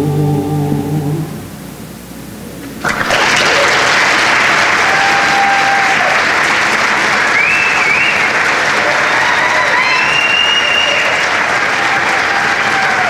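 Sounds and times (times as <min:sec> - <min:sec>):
audience applause: 0:02.8 - 0:13.0
high cheers: 0:02.9 - 0:13.0.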